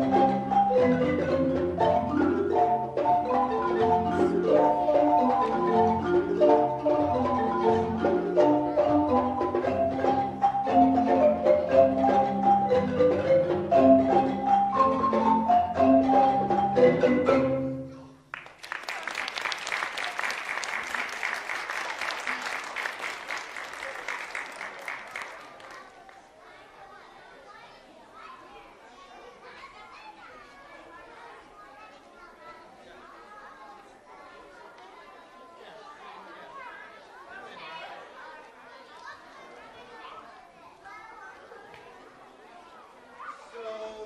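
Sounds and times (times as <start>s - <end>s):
marimba ensemble playing: 0.0s - 17.9s
audience applause: 18.3s - 26.4s.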